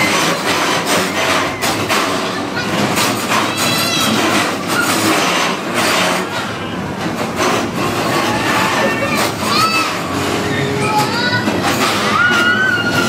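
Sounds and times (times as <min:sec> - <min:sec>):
bumper cars rumbling and colliding: 0:00.0 - 0:13.0
brief high squeals: 0:11.8 - 0:13.0.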